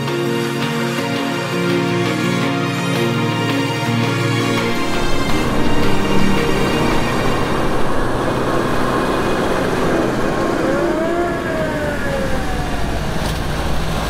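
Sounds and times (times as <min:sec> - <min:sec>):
fire truck siren wailing: 0:00.0 - 0:14.0
car engines and tyres passing: 0:04.2 - 0:14.0.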